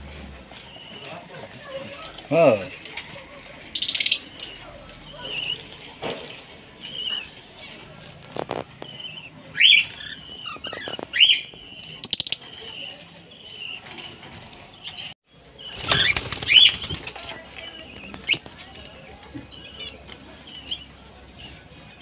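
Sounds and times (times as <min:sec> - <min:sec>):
birds chirping: 0:00.3 - 0:22.0
wings fluttering: 0:15.6 - 0:18.8.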